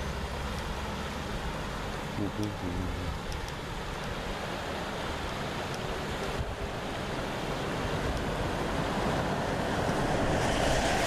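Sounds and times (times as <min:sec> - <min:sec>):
river water rushing over weir: 0:00.0 - 0:11.0
truck engine and tyres: 0:00.0 - 0:11.0
wind on microphone: 0:07.9 - 0:11.0.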